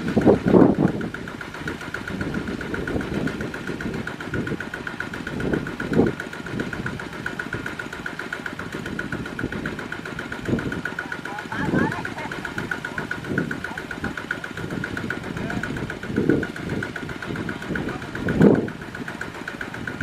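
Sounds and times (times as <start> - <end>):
diesel tractor engine knocking: 0.0 - 20.0.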